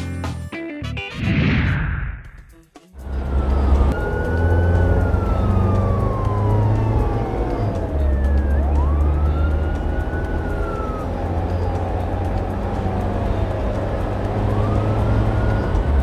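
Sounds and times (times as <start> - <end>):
engine running: 3.0 - 16.0
police siren wail: 3.0 - 16.0.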